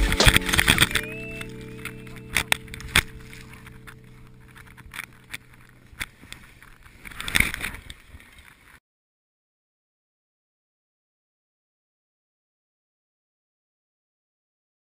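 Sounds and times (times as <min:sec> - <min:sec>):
held music chord: 0:00.0 - 0:06.8.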